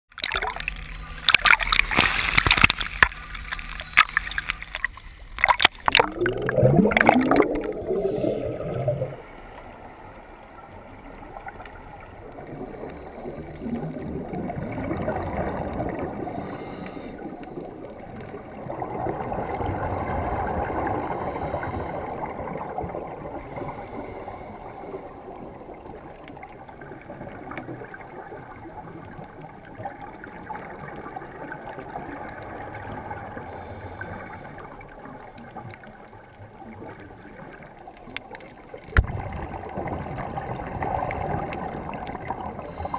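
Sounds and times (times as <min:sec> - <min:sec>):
scuba bubbles: 0:00.1 - 0:42.9
underwater water rushing and gurgling: 0:00.1 - 0:42.9.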